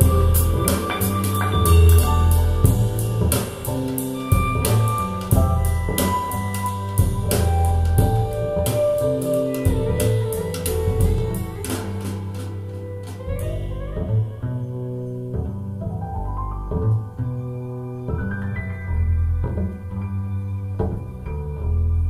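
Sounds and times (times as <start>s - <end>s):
drum beat: 0.0s - 13.4s
bass line: 0.0s - 22.0s
held melodic notes: 0.0s - 22.0s.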